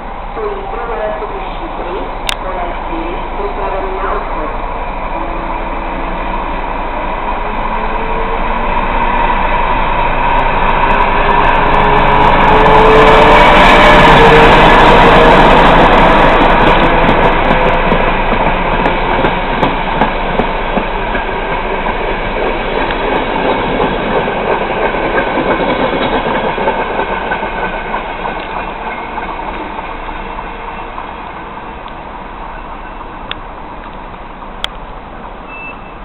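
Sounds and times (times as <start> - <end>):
diesel locomotive: 0.0 - 36.0
train wheels clicking over rail joints: 15.0 - 30.3.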